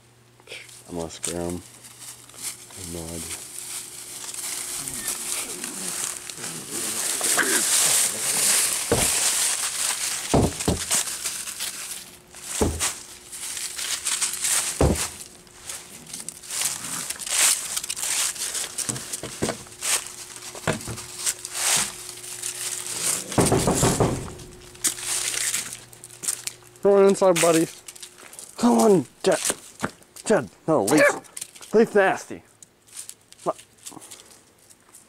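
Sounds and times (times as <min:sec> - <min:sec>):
dry leaves crunching underfoot: 0:00.7 - 0:30.3, 0:32.8 - 0:35.0
thumps: 0:08.8 - 0:09.3, 0:12.6 - 0:13.0, 0:14.7 - 0:15.2, 0:23.3 - 0:25.0.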